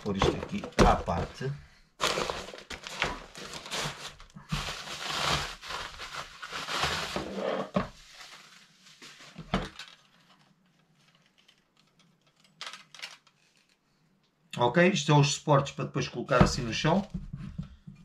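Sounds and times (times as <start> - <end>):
packaging rustling and crinkling: 0.0 - 13.8.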